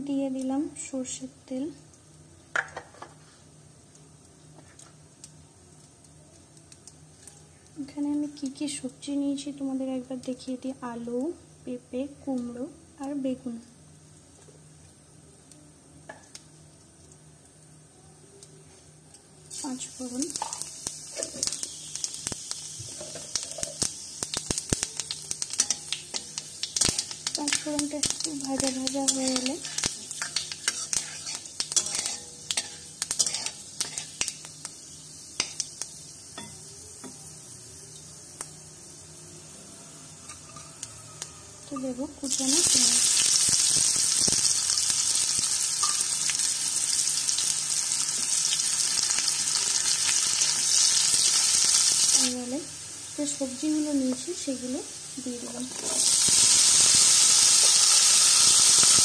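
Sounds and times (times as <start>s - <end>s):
onions sizzling in oil: 0.0s - 59.0s
seeds popping and crackling in oil: 19.5s - 36.4s, 40.4s - 47.1s
spatula stirring: 25.6s - 34.4s.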